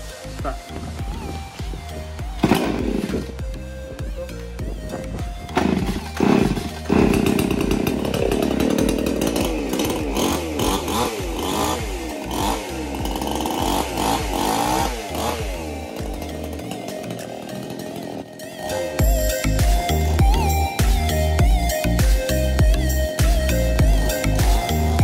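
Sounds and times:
chainsaw revving: 0:00.0 - 0:04.4, 0:05.4 - 0:25.0
chainsaw pull-start: 0:02.4 - 0:03.4, 0:05.4 - 0:19.1, 0:23.8 - 0:25.0.

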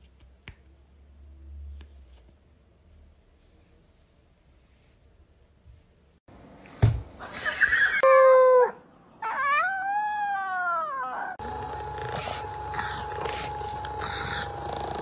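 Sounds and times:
puppy howling: 0:07.9 - 0:11.4.

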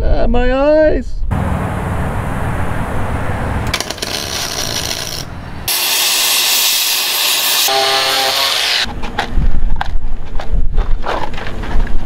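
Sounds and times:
cutting torch hissing: 0:05.7 - 0:08.9.

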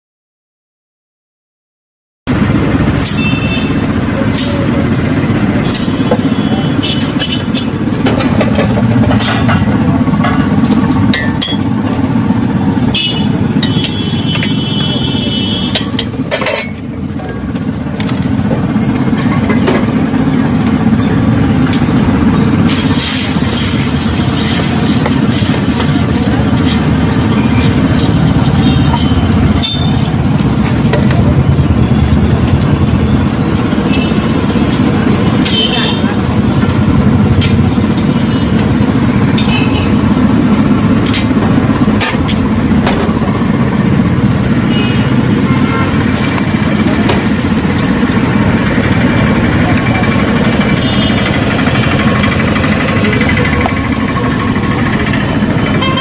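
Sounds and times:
low mechanical rumble: 0:02.3 - 0:56.0
steel utensils clinking: 0:02.9 - 0:12.0, 0:15.7 - 0:17.4, 0:21.2 - 0:32.4
puffed rice stirred in steel bowl: 0:21.8 - 0:31.5.

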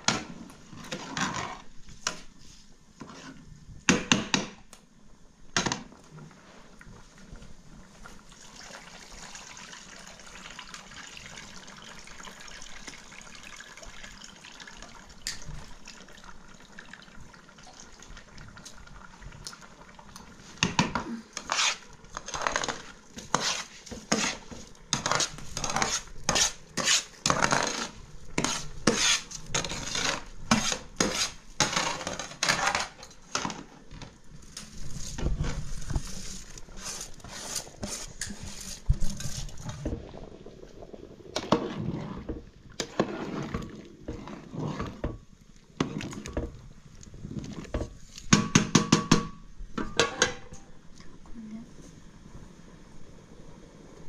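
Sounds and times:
faint steady hiss: 0:00.0 - 0:54.0
metal spoon scraping a tray: 0:21.4 - 0:33.5.

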